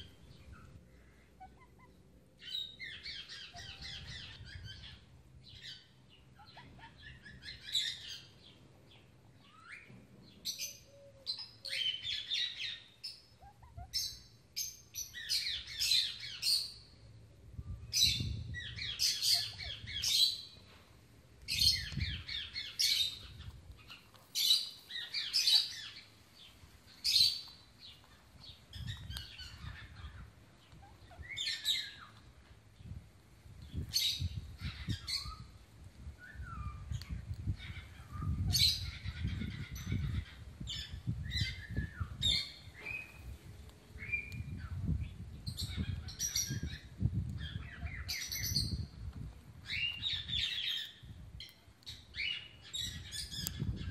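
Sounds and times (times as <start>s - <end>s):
parrots chirping and squawking: 0.4s - 5.0s, 6.4s - 8.2s, 10.6s - 14.2s, 18.6s - 20.6s, 21.6s - 26.0s, 36.6s - 41.5s.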